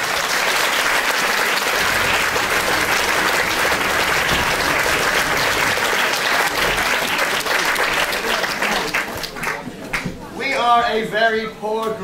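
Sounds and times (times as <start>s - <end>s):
audience applauding: 0.0s - 10.1s.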